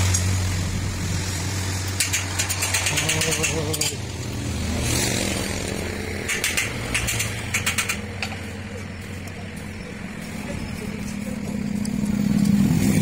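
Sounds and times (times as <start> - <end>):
power tool rattling: 1.9 - 4.0, 4.8 - 8.4.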